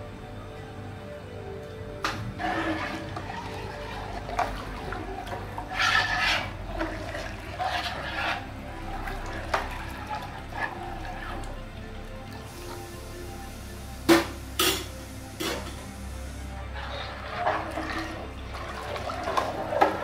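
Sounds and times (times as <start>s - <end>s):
liquid sloshing in a pot: 2.1s - 13.0s, 16.5s - 20.0s.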